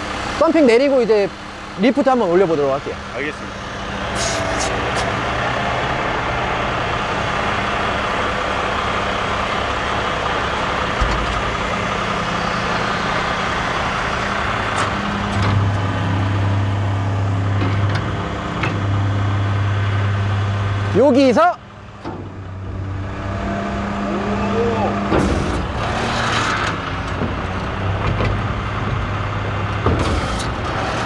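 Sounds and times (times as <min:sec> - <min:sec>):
hydraulic pump hum: 0:00.0 - 0:21.0
diesel truck engine running: 0:00.0 - 0:31.0.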